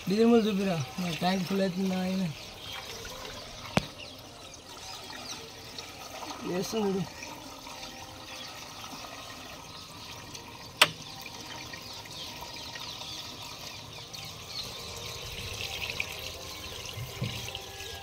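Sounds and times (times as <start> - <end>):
liquid pouring through a funnel: 0.0 - 18.0.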